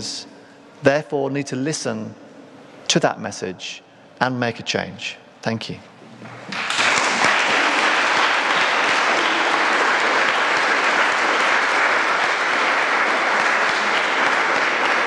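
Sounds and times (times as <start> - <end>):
audience applauding: 6.5 - 15.0.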